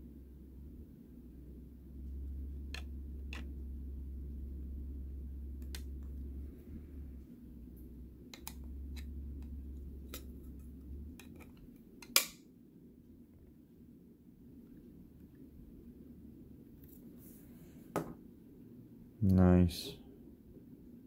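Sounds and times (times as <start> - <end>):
low hum: 0.0 - 17.7.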